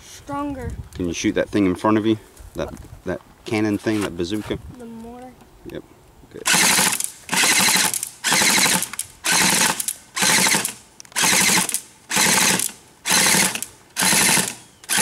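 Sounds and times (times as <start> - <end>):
airsoft guns firing bursts: 6.5 - 15.0.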